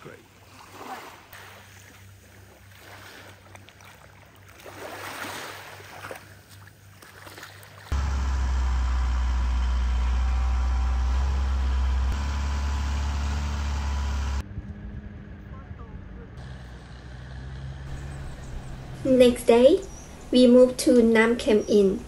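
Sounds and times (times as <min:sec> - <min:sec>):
small waves on a shingle beach: 0:00.0 - 0:08.0
boat engine running: 0:07.9 - 0:22.0.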